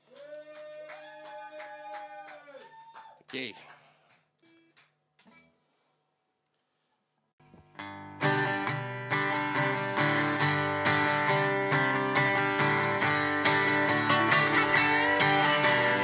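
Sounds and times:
acoustic guitar strumming: 0:07.7 - 0:16.0.

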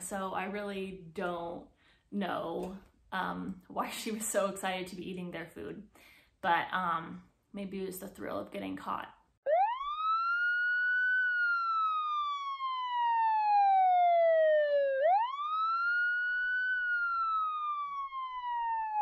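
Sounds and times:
wailing siren: 0:09.4 - 0:19.0.

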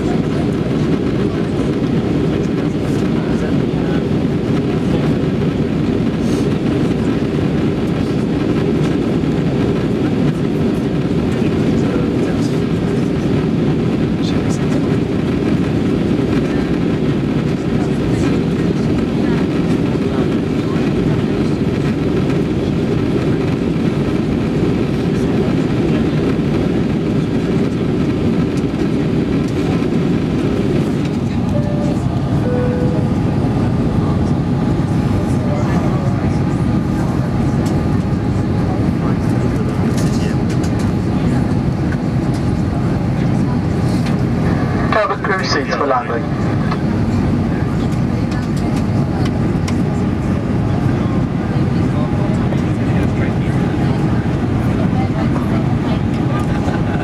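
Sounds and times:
airliner cabin rumble: 0:00.0 - 0:57.0.

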